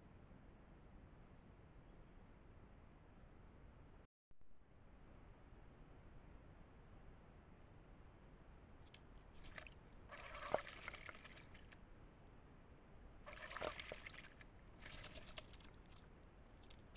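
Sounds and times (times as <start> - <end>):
bird splashing and wing-fluttering: 8.8 - 11.8, 13.2 - 16.9.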